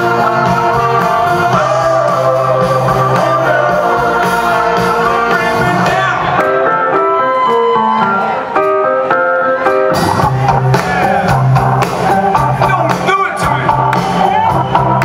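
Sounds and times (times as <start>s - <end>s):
bass and drums: 0.0s - 6.5s, 9.9s - 15.0s
rock band playing: 0.0s - 15.0s.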